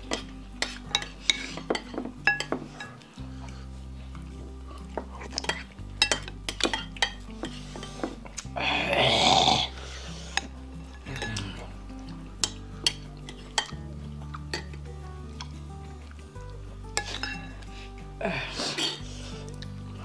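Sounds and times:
spoons clinking against ceramic bowls: 0.0s - 3.1s, 5.0s - 8.2s, 10.3s - 11.7s, 12.4s - 15.5s, 16.9s - 17.7s, 18.6s - 19.6s
background music with bass line: 0.0s - 20.0s.

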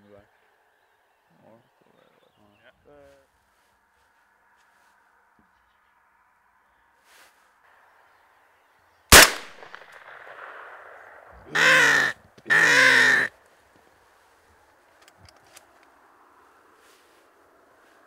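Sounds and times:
shotgun shot: 9.1s - 11.3s
crow cawing: 11.4s - 13.4s.

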